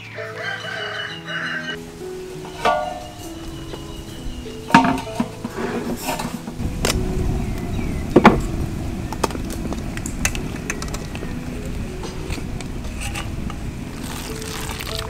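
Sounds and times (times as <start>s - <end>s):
water boiling hard: 2.0s - 15.0s
tongs clanking on steel wok: 2.4s - 3.6s, 4.7s - 6.6s.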